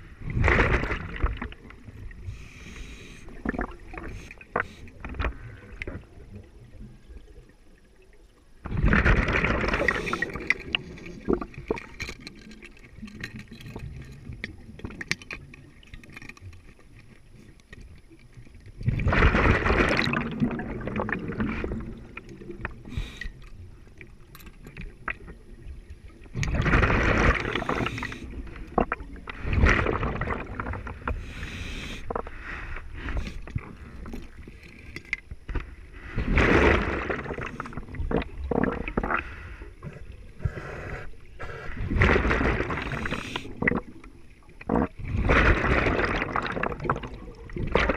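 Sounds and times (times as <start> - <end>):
quiet hiss: 0.0 - 8.9, 9.6 - 45.6
underwater bubbles gurgling: 0.0 - 47.9
gear clicks and knocks: 11.4 - 14.2.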